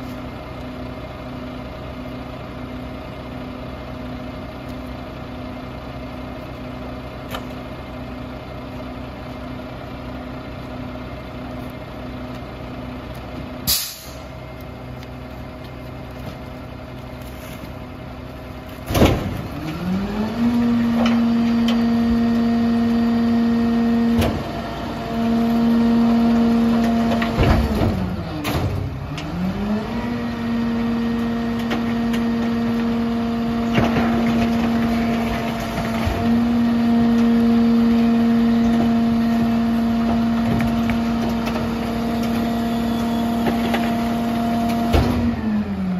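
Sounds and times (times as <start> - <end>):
garbage truck diesel engine idling: 0.0 - 19.6
hydraulic packer running: 0.0 - 45.9.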